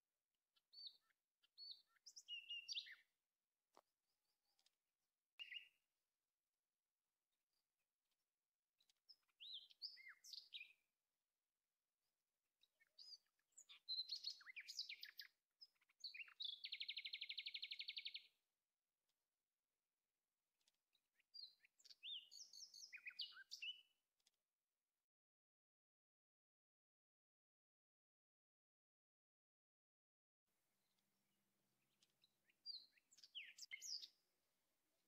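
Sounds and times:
bird song chirps and whistles: 0:00.6 - 0:03.1, 0:05.4 - 0:05.8, 0:09.1 - 0:10.8, 0:12.7 - 0:18.3, 0:21.2 - 0:23.9, 0:32.6 - 0:34.2.

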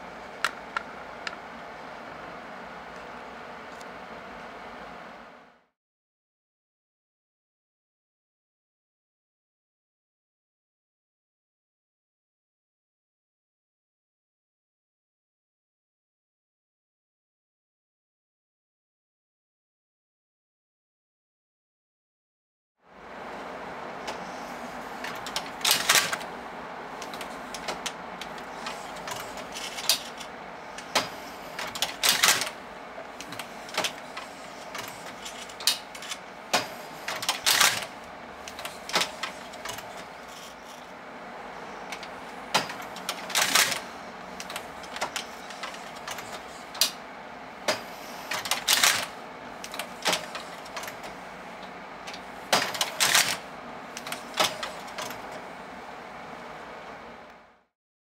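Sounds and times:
knitting machine carriage rasping: 0:23.1 - 0:41.0, 0:41.6 - 0:55.5.

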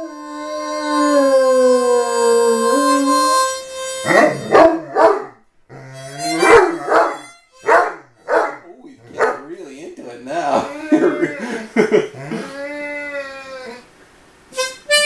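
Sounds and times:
puppy howling: 0:00.0 - 0:03.3, 0:04.0 - 0:09.4, 0:12.2 - 0:13.9
harmonica playing: 0:00.0 - 0:13.9, 0:14.5 - 0:15.0.

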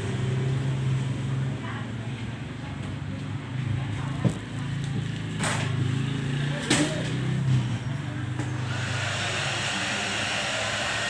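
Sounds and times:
hair dryer running: 0:08.6 - 0:11.0.

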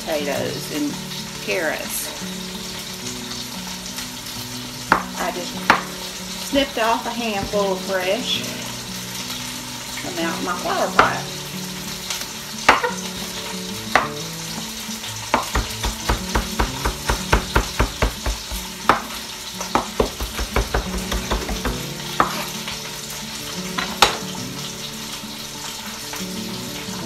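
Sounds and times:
meat sizzling in oil: 0:00.0 - 0:27.0
knife chopping on wooden board: 0:14.0 - 0:14.2, 0:15.3 - 0:19.1, 0:19.7 - 0:22.5.

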